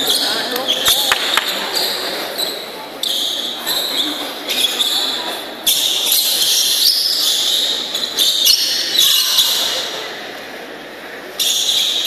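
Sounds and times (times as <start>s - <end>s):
shoes squeaking on court floor: 0.0s - 8.8s.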